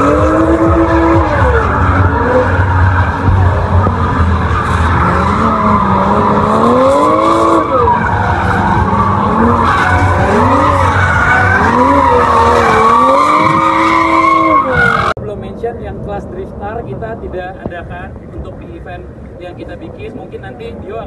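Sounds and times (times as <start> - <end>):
car engine revving: 0.0 - 15.2.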